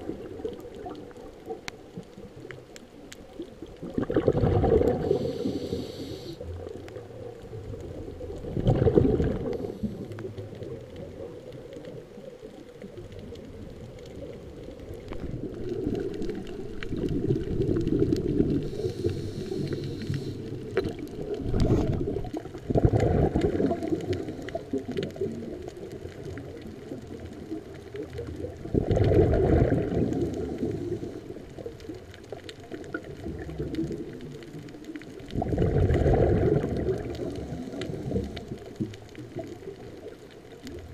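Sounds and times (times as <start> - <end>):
exhaled bubbles rumbling underwater: 0.0 - 40.9
regulator inhalation hiss: 5.0 - 6.4, 18.6 - 20.7.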